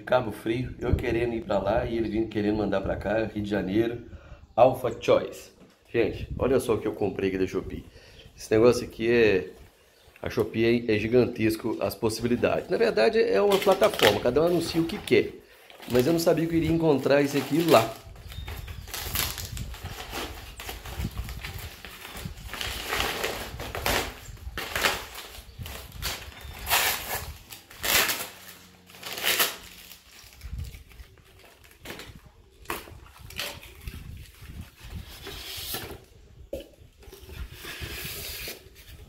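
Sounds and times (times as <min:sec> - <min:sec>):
paper and cardboard tearing: 0:13.4 - 0:15.0, 0:15.9 - 0:18.0, 0:18.9 - 0:30.9.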